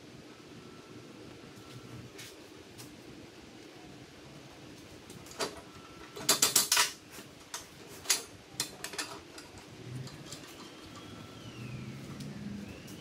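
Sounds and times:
metal clicks and clanks: 6.2 - 11.1.

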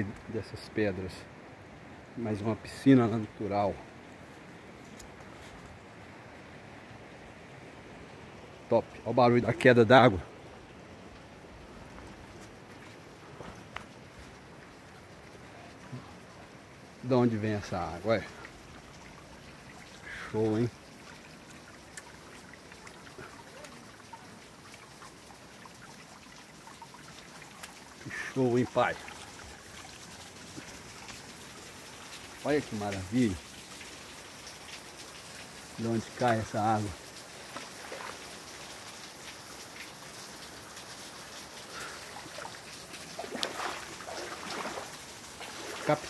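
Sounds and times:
waterfall spray splashing on rocks: 17.0 - 46.0
faint clicks: 21.4 - 23.0
waterfall rushing: 41.6 - 46.0.

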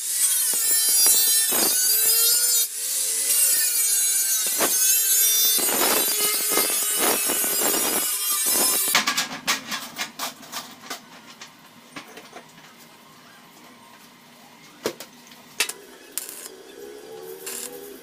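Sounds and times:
welding arc crackling: 0.0 - 9.0, 15.6 - 18.0.

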